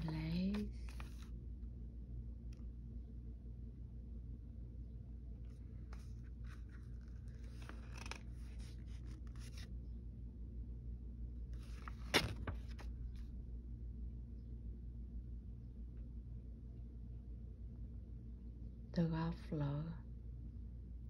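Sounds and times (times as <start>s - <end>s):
paper pages rustling: 0.0s - 1.3s, 5.5s - 9.7s, 11.6s - 12.9s
steady low hum: 0.0s - 21.0s
sharp page-turn: 5.9s - 9.7s, 11.6s - 12.9s.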